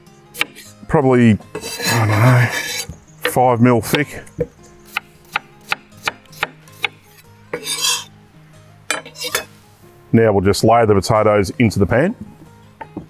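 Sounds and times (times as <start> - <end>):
knife slicing potatoes on board: 0.4 - 0.7, 1.5 - 4.0, 4.9 - 8.1, 8.9 - 9.5
short scraping rub: 1.6 - 2.9, 7.6 - 8.1, 9.1 - 9.6.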